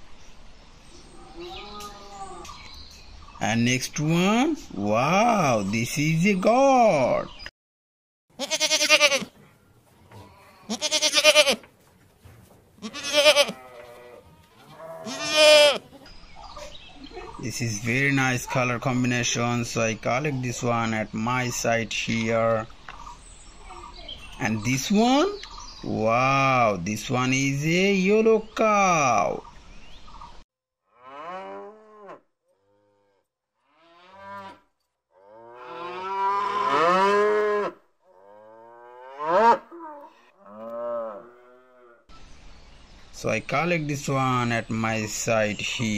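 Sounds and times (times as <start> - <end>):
goats bleating: 8.4 - 9.4, 10.1 - 11.7, 12.8 - 16.0
cows mooing: 12.8 - 15.8, 30.9 - 34.6, 35.2 - 42.1.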